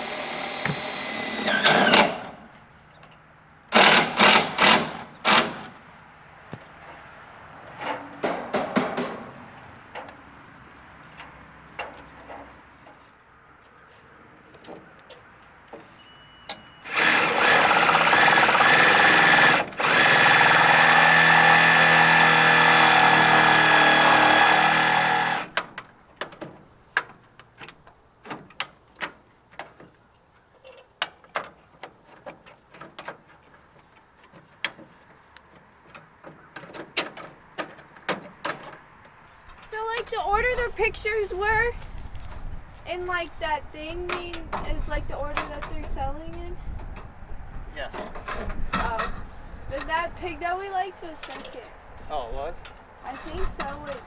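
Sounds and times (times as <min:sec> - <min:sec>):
power drill running: 0:00.0 - 0:02.4, 0:03.7 - 0:05.7, 0:16.8 - 0:25.5.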